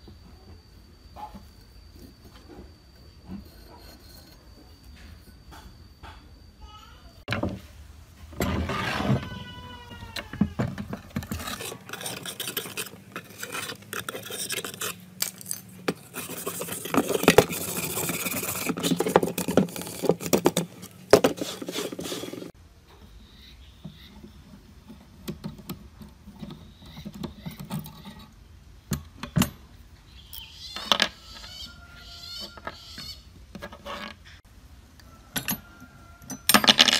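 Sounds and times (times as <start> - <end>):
small metal parts clicking: 11.0 - 21.0
wire brush scrubbing rust: 11.0 - 22.6.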